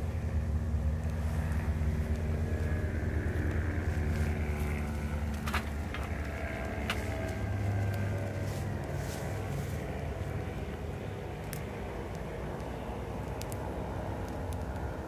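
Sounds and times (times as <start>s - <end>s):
steady low rumble: 0.0s - 15.0s
wood fire crackling: 0.0s - 15.0s
sharp pops of fire: 11.4s - 15.0s.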